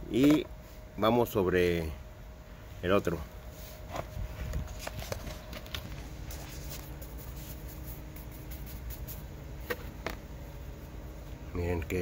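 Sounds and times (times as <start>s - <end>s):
paintbrush scratching on cement: 6.3s - 9.3s.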